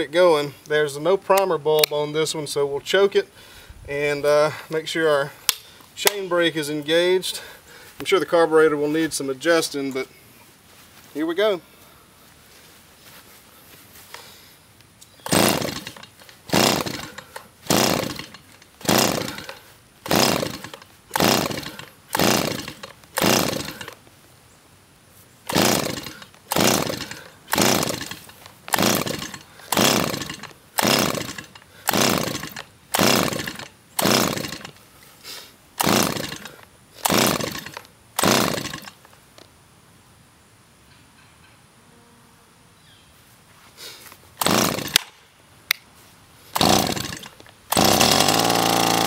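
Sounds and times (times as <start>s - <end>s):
chainsaw recoil starter pulls: 5.5s - 6.3s, 15.2s - 24.0s, 25.5s - 34.8s, 35.8s - 39.2s, 44.4s - 45.2s, 46.5s - 49.0s.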